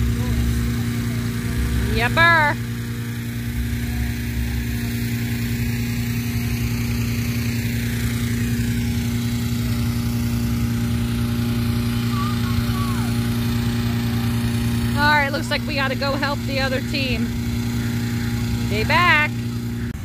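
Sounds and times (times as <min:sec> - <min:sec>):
small engine fan running: 0:00.0 - 0:20.0.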